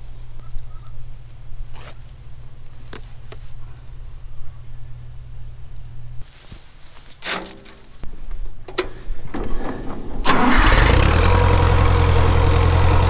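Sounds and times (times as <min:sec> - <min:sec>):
plastic posts clicking together: 0:07.1 - 0:07.9.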